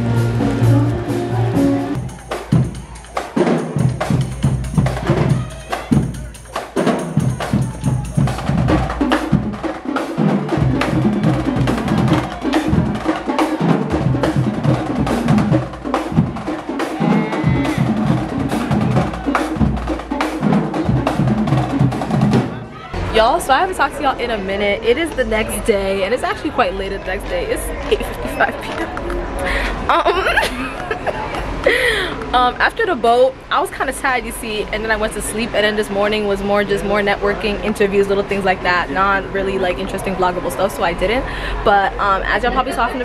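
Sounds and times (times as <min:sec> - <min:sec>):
other music: 0:00.0 - 0:22.7
marching drumline: 0:00.0 - 0:23.3.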